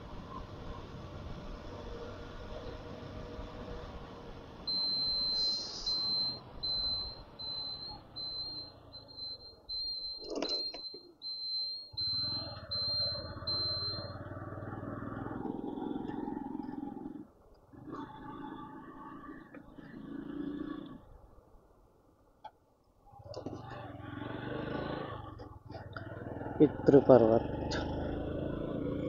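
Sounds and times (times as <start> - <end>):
high electronic beeps: 4.7 - 14.3.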